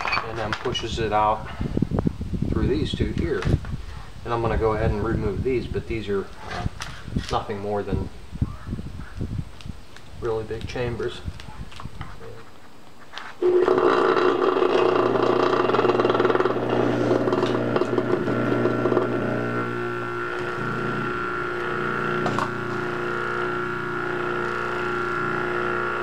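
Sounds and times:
compressor motor hum and clatter: 13.4s - 26.0s.

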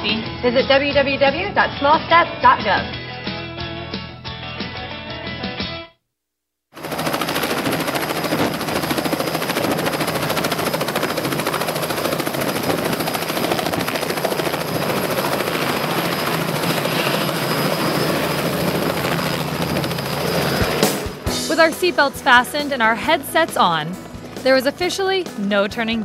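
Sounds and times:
helicopter rotor chop: 6.8s - 26.0s.

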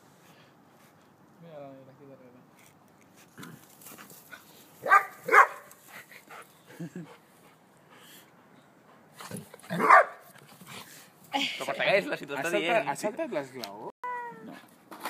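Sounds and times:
dog barking: 4.8s - 5.7s, 9.7s - 10.2s.

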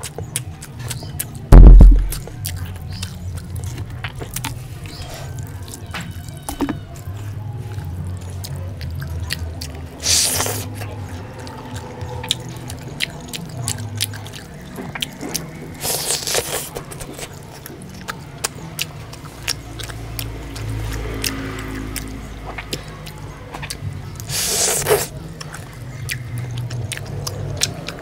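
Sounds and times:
chicken tearing: 0.0s - 12.8s, 13.6s - 28.0s
chewing: 0.0s - 28.0s
wet squelching of food by hand: 0.0s - 28.0s.

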